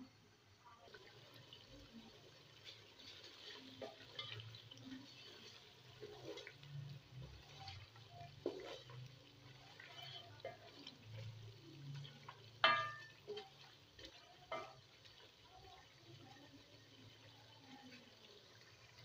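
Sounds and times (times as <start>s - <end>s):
chicken bubbling in hot oil: 0.0s - 19.0s
wooden spatula scraping pot: 2.0s - 15.3s.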